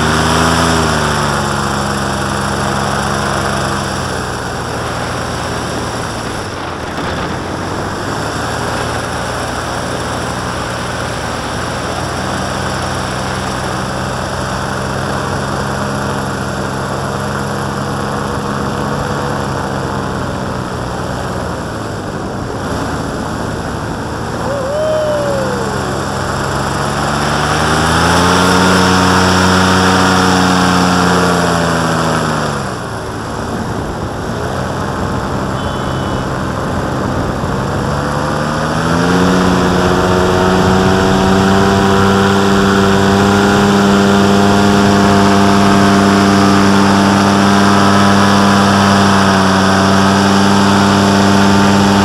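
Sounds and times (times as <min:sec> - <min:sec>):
paramotor engine and propeller: 0:00.0 - 0:52.0
rush of air: 0:21.7 - 0:28.7.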